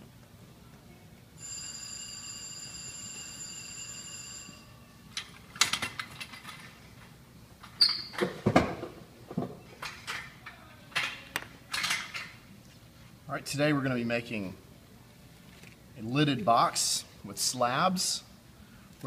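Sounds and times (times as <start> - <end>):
short squeak: 7.8 - 8.2.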